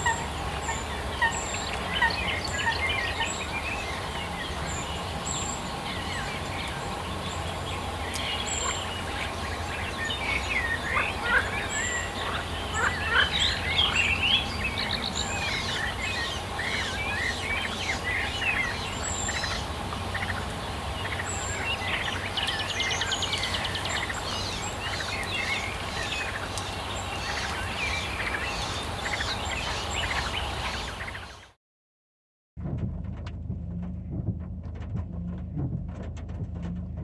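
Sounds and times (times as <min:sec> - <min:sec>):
songbirds singing: 0:00.0 - 0:31.6
low hum: 0:32.6 - 0:37.0.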